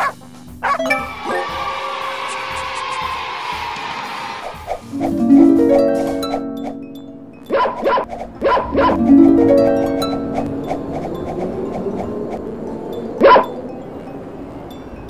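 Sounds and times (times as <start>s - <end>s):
cartoon dog barking: 0.0s - 1.0s, 7.5s - 9.0s
plucked harp-like music: 0.4s - 1.8s, 4.8s - 15.0s.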